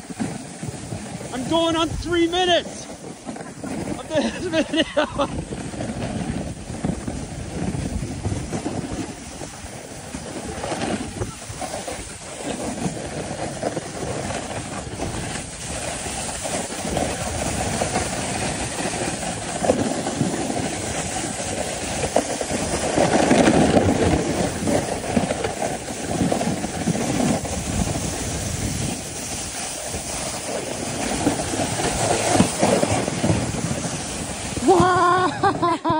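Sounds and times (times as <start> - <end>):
sled scraping on snow: 0.0 - 35.9.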